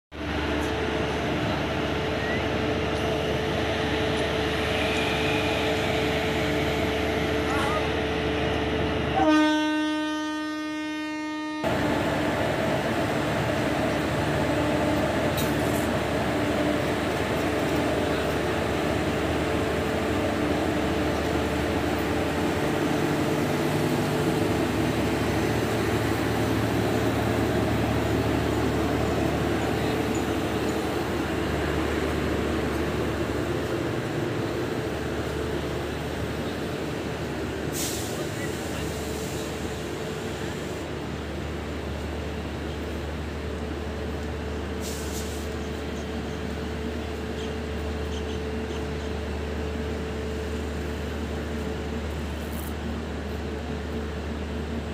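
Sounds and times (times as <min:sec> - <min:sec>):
train coaches rumbling on track: 0:00.1 - 0:54.9
locomotive horn: 0:09.1 - 0:11.8.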